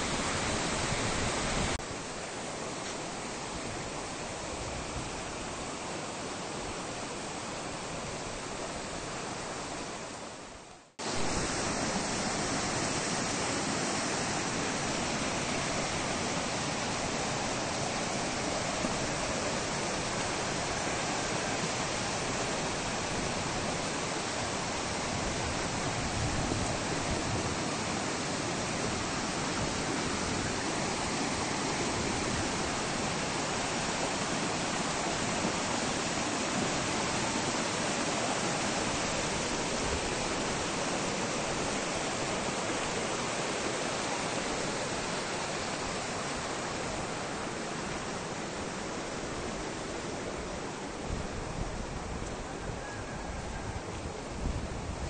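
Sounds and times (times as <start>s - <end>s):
fast-flowing river water: 0.0s - 55.0s.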